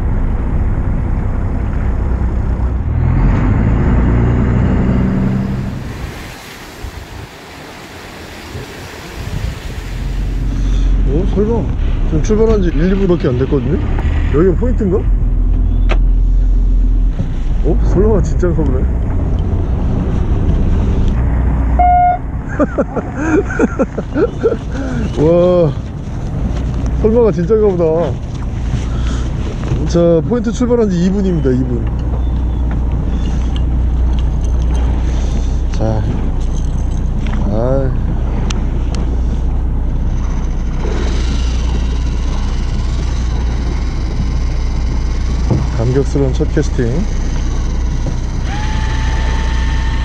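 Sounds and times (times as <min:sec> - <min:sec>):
boat engine rumbling: 0:00.0 - 0:50.0
water noise: 0:00.0 - 0:50.0
wind: 0:00.0 - 0:50.0
short horn beep: 0:21.8 - 0:22.3.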